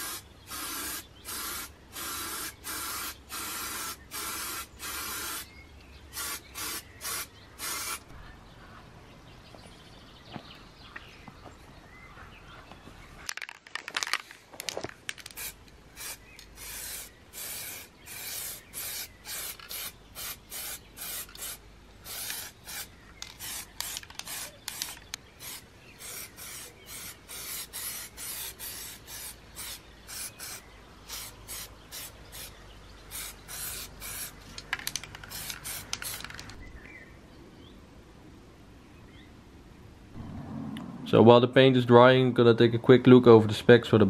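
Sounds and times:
spray paint hissing: 0:00.0 - 0:05.5, 0:06.1 - 0:08.1, 0:15.1 - 0:32.5, 0:33.1 - 0:36.6.

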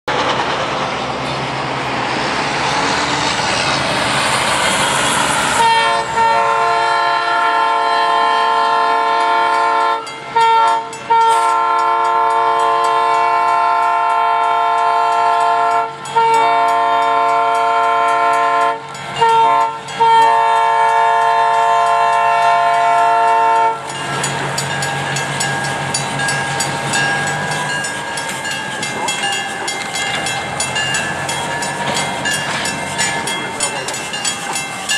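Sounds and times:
train wheels clattering on rails: 0:00.1 - 0:07.6, 0:08.9 - 0:34.9
locomotive air horn blasts: 0:05.4 - 0:24.0.

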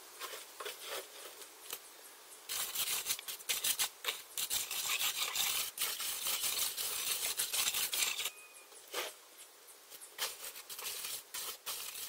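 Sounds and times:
trowel scraping cement mix: 0:02.5 - 0:09.2, 0:10.2 - 0:12.0.

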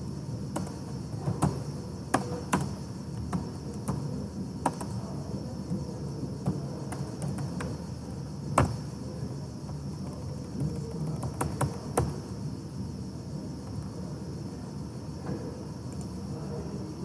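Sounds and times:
low hum and hiss: 0:00.0 - 0:17.0.

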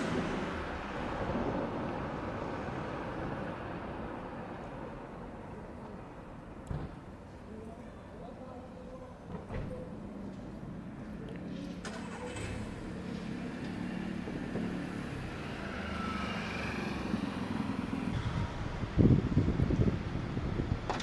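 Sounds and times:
street noise: 0:00.0 - 0:21.0
loud low rumble: 0:18.2 - 0:20.8.

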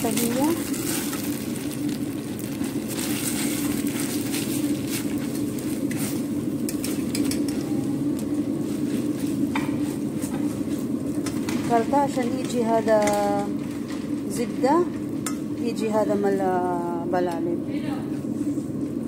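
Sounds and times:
light sizzle: 0:00.0 - 0:18.6
steady low hum: 0:00.0 - 0:19.0.

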